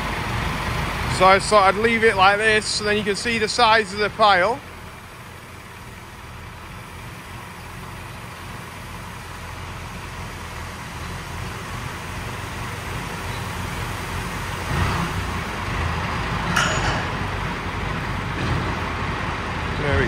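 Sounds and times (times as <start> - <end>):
tractor diesel engine running: 0.0 - 20.0
grain sliding off trailer: 12.9 - 16.5.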